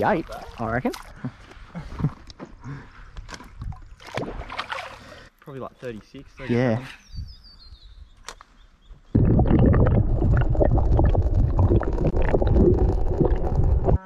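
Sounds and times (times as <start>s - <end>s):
underwater rushing and gurgling: 9.2s - 14.0s.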